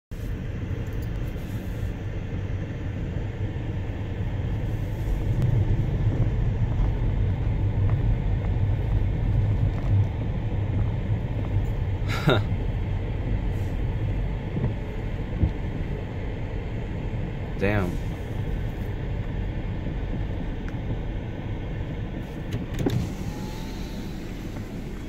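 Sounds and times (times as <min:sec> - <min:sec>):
car driving on dirt road: 0:00.1 - 0:25.0.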